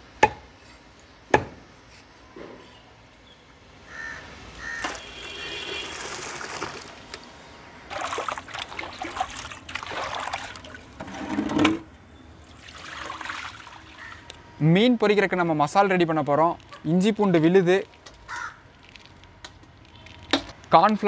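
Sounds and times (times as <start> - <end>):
water splashing: 4.9 - 7.2, 7.9 - 11.4, 12.4 - 14.3
hands sloshing fish in water: 7.9 - 11.0, 12.5 - 14.3.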